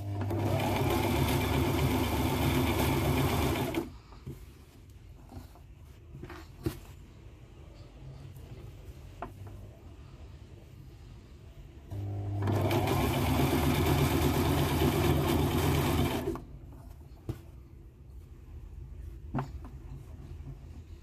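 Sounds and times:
electric sewing machine stitching: 0:00.0 - 0:03.9, 0:11.9 - 0:16.4.

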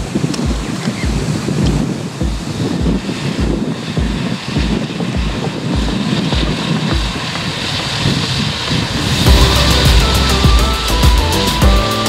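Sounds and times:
regular low thump: 0:00.0 - 0:07.2, 0:09.3 - 0:12.0
wind on microphone: 0:00.0 - 0:11.7
tractor diesel engine under load: 0:07.2 - 0:12.0.

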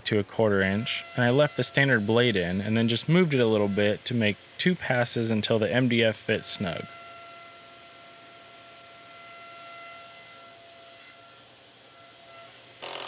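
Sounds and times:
table saw whining: 0:00.5 - 0:13.0
saw cutting board: 0:00.6 - 0:07.6, 0:12.0 - 0:13.0.

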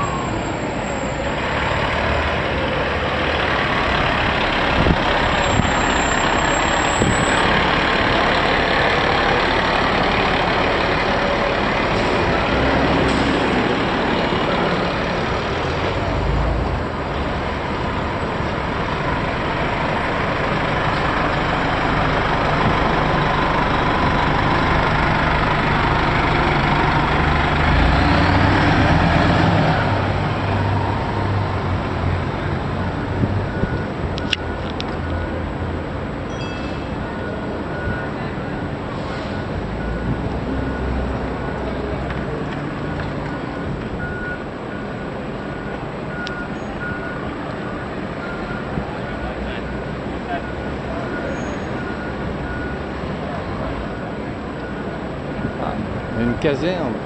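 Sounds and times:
fire engine diesel engine running: 0:00.0 - 0:36.3
street traffic: 0:00.0 - 0:57.0.

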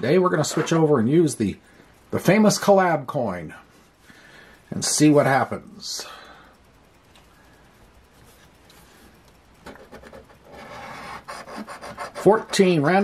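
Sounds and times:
coin scratching lottery ticket: 0:09.8 - 0:12.7.

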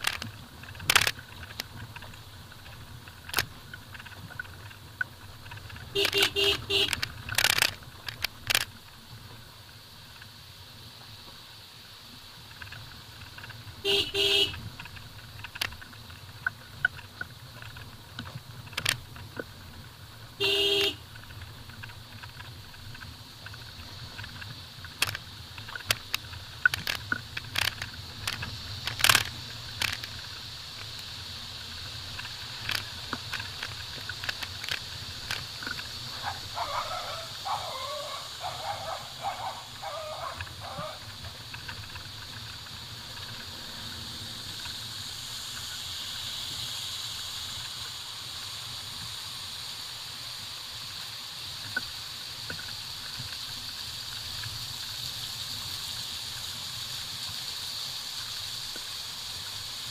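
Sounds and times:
low engine hum: 0:00.0 - 0:59.9
car horn honks: 0:06.0 - 0:07.0, 0:13.8 - 0:14.6, 0:20.4 - 0:21.0
stones clicking and knocking: 0:06.9 - 0:08.8.

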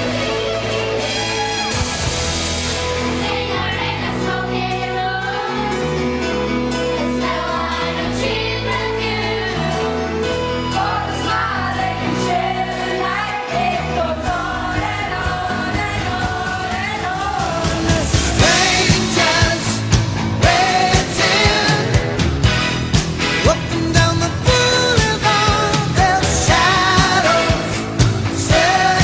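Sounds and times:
girls singing together: 0:03.2 - 0:05.8, 0:07.2 - 0:09.9, 0:10.8 - 0:19.8.

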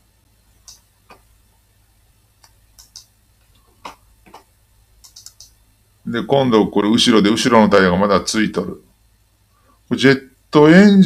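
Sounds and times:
faint low hum: 0:00.0 - 0:11.0
mouse and keyboard clicks: 0:00.6 - 0:01.3, 0:02.4 - 0:03.1, 0:03.8 - 0:05.6.

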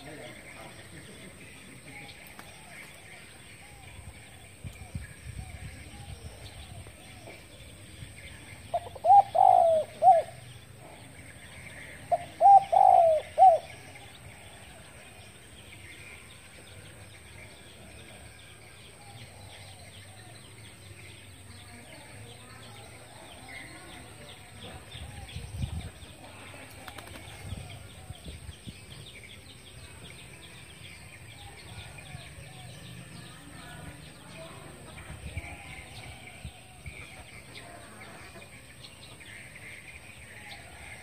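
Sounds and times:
dove cooing: 0:08.7 - 0:10.4, 0:12.1 - 0:13.8.

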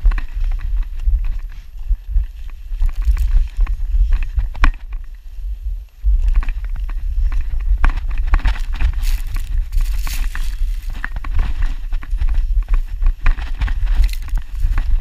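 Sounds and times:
wind buffeting microphone: 0:00.0 - 0:15.0
knocks and crunches: 0:02.7 - 0:05.0, 0:06.2 - 0:15.0
body sliding through snow: 0:06.8 - 0:15.0.

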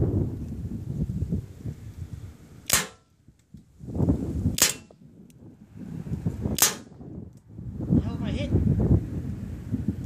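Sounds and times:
low rumbling noise: 0:00.0 - 0:10.0
pellet rifle shots: 0:02.6 - 0:03.1, 0:04.5 - 0:05.0, 0:06.5 - 0:06.9.

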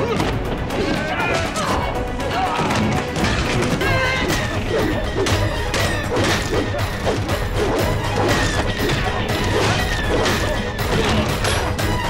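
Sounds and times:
action music score: 0:00.0 - 0:12.0.

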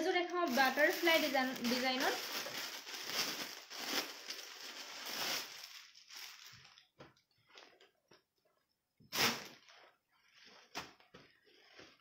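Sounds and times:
cloth rustling and crinkling: 0:00.0 - 0:07.8.

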